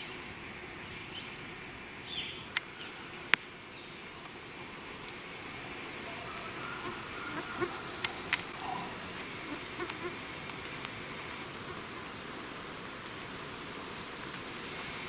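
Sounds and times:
insects droning: 0.0 - 15.0
insect buzzing close by: 0.5 - 15.0
sharp clicks: 8.0 - 8.6.

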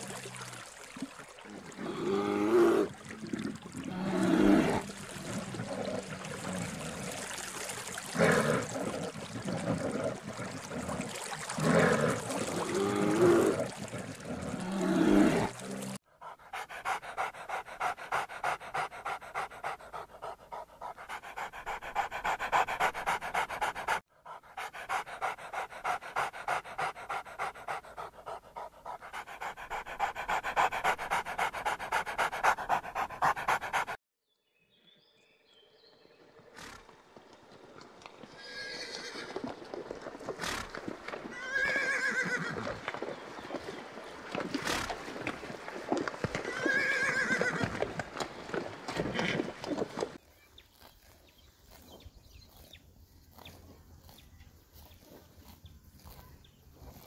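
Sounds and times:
water splashing: 0.0 - 34.0, 42.6 - 50.2
dog panting: 16.0 - 34.0.

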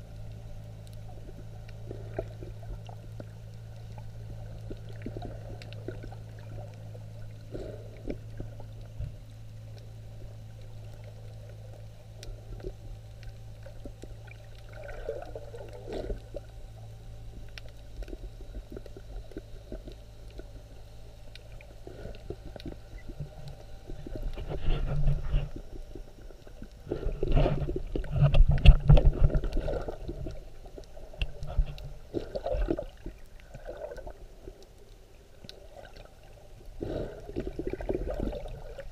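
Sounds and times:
underwater low hum: 0.0 - 38.9
water sloshing and rumbling: 0.0 - 38.9
faint clicks: 8.0 - 33.5.

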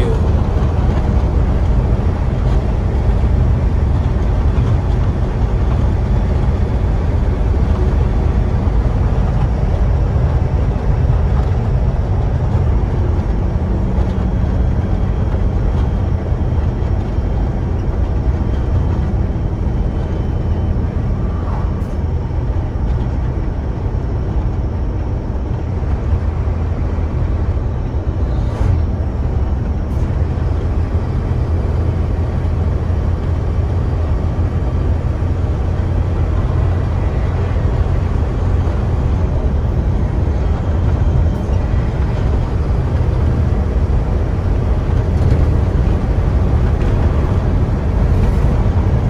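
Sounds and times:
truck engine and road noise: 0.0 - 49.0.

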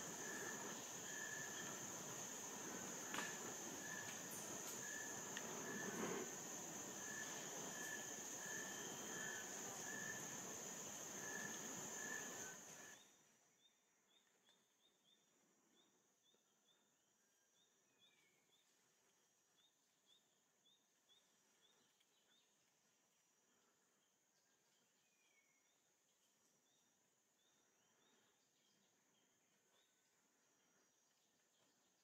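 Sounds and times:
insect drone with pulsing note: 0.0 - 13.0
faint insect chirps: 0.0 - 32.0.

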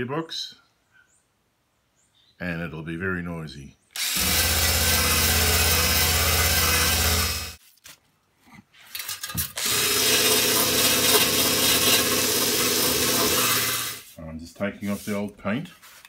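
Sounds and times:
drill wire brush on metal: 4.0 - 7.6, 8.9 - 14.2.

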